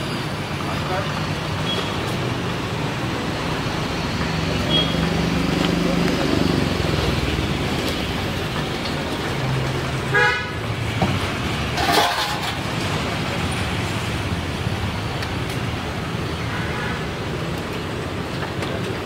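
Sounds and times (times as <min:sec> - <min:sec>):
roadside traffic noise: 0:00.0 - 0:19.0
vehicle horn toot: 0:10.1 - 0:10.6.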